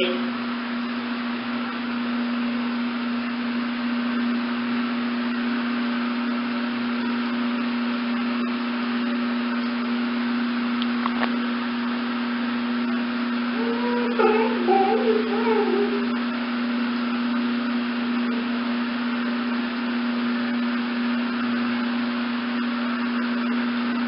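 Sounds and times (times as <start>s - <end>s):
low hum: 11.4s - 21.4s.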